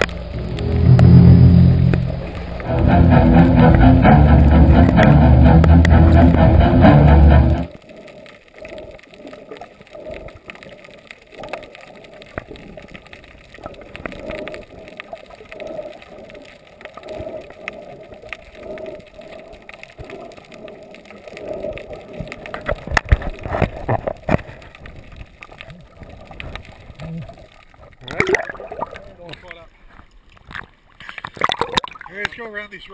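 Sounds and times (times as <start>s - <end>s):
scattered clicks and crackles: 0.0s - 1.4s, 2.0s - 32.9s
knocks and splashing: 0.0s - 7.8s
muffled underwater noise: 0.0s - 12.6s.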